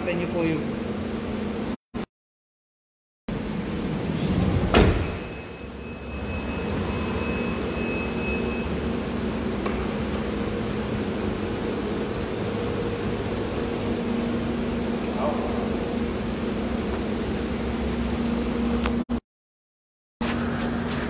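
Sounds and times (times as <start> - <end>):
low mechanical hum: 3.3 - 19.1, 20.2 - 21.0
van sliding door slamming: 4.1 - 5.3
faint high whine: 5.2 - 8.8.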